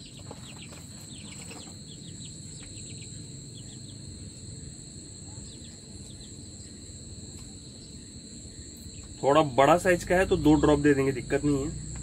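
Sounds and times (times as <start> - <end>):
chick peeping: 0.0 - 4.1
cricket chirring: 0.0 - 12.0
low background rumble: 1.8 - 12.0.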